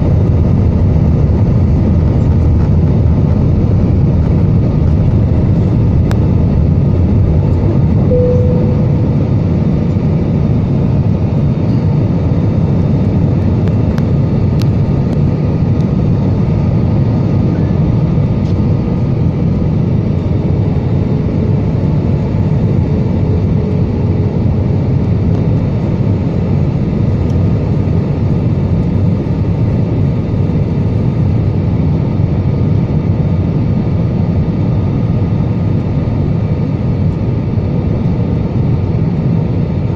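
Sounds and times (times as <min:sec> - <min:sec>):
airliner cabin noise: 0:00.0 - 0:39.9
faint brief tone: 0:08.0 - 0:10.0.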